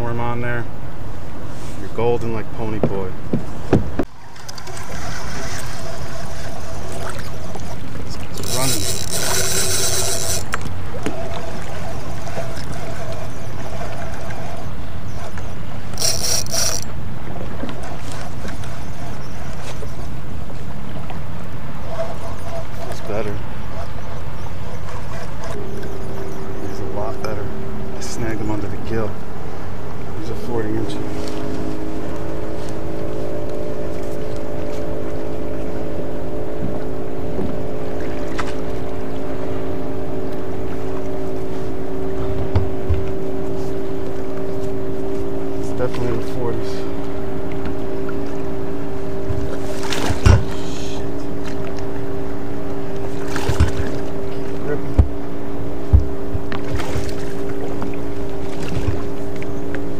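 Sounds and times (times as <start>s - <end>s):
boat motor humming: 0.0s - 59.9s
water rumble: 0.0s - 59.9s
wind: 0.0s - 59.9s.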